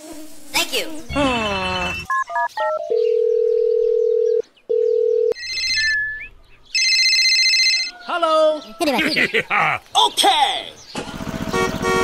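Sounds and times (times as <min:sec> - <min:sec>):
high electronic ringtone: 0:02.0 - 0:06.2, 0:06.8 - 0:08.0
phone calling tone: 0:02.0 - 0:06.2, 0:06.8 - 0:08.4.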